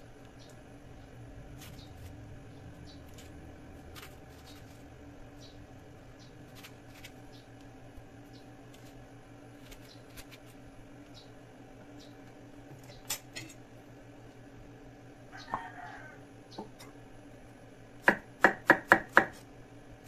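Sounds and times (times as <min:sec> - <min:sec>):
low hum: 0:00.0 - 0:12.9.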